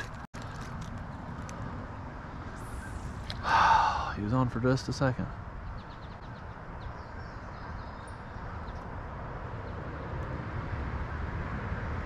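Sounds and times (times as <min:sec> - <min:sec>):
low outdoor background noise: 0:00.0 - 0:12.0.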